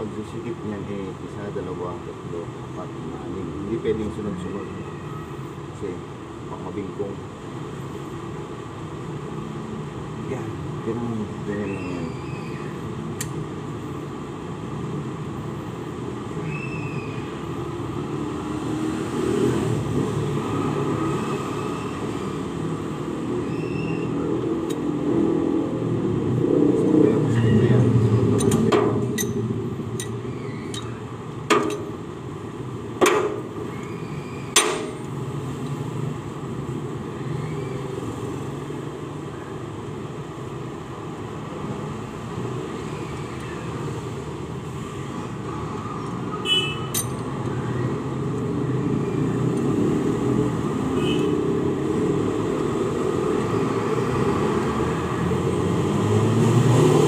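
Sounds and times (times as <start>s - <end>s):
wrench clinking on bolts: 28.4s - 29.4s, 30.0s - 31.9s, 46.9s - 47.4s.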